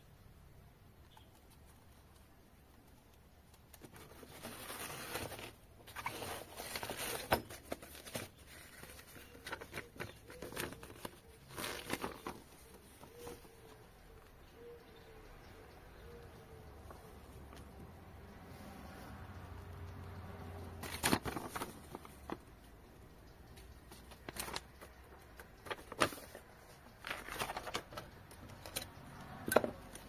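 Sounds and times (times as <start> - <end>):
paper rustling and crinkling: 3.8 - 13.5, 20.8 - 22.5, 23.9 - 28.7.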